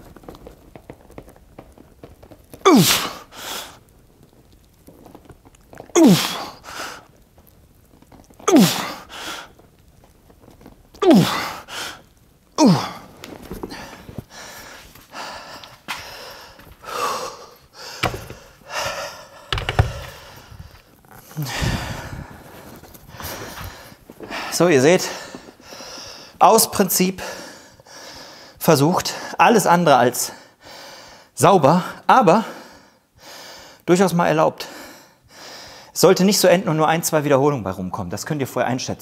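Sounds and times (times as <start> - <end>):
man grunting with strain: 6.0 - 6.5, 8.5 - 9.0, 12.6 - 13.1
man breathing hard: 8.7 - 9.6, 11.2 - 13.1, 13.7 - 26.4, 27.2 - 29.4, 30.3 - 31.4, 32.4 - 33.8, 34.6 - 35.9.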